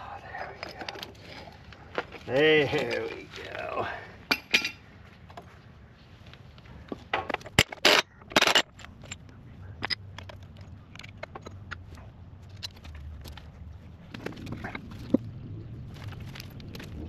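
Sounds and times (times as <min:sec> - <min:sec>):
metal clinks and scrapes from tools: 0:04.3 - 0:04.8.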